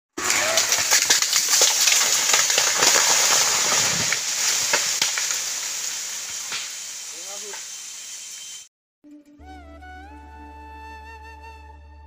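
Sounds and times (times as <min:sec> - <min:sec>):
tree crashing through undergrowth: 0:00.2 - 0:07.5
branches and bamboo snapping: 0:00.2 - 0:07.7.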